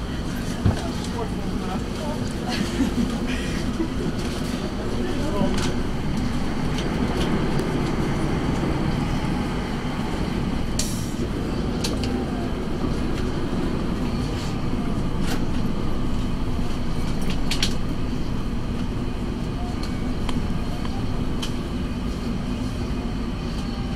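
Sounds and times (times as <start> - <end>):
tram wheels rumbling: 0.0 - 23.9.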